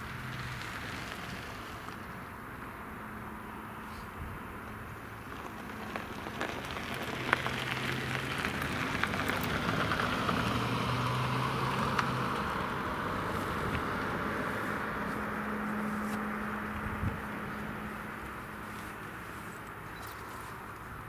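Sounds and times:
sharp crackles: 0:05.2 - 0:10.3
turboprop engine and propeller: 0:12.3 - 0:21.0.

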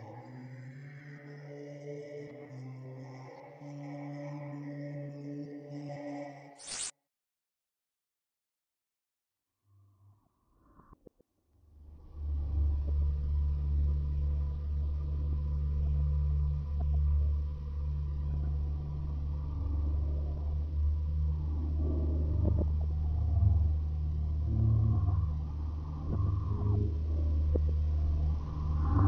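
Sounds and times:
low rumbling drone: 0:11.8 - 0:29.0.

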